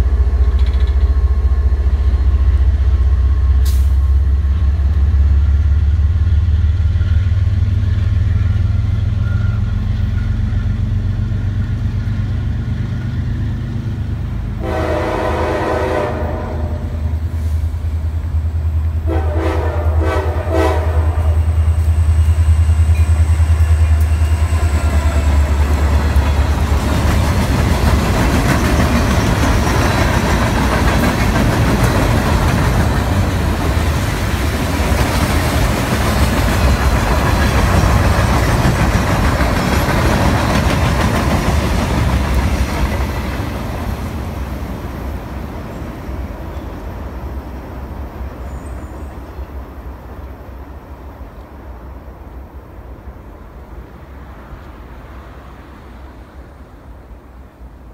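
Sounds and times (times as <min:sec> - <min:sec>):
diesel locomotive drone: 0:00.0 - 0:57.9
freight cars rumbling on rails: 0:00.0 - 0:57.9
locomotive air horn: 0:14.6 - 0:17.6, 0:19.0 - 0:21.9.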